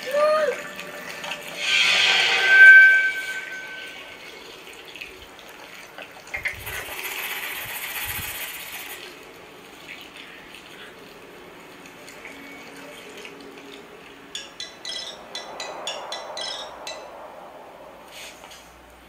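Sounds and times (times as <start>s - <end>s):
thin steady tone: 0.0s - 5.8s, 12.2s - 18.5s
rushing hissing noise: 0.2s - 4.4s.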